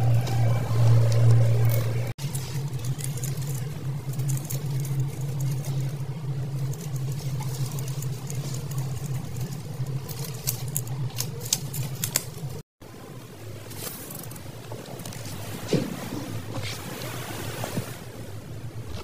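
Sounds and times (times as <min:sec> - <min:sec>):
steady low hum: 0:00.0 - 0:19.0
light clicks and scratches: 0:00.2 - 0:12.6.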